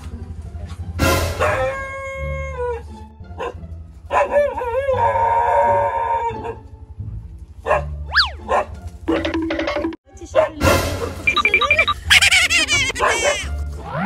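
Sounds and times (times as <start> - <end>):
background music: 0.0 - 14.0
huskies howling: 4.1 - 6.6
up-and-down whistle: 8.1 - 8.4.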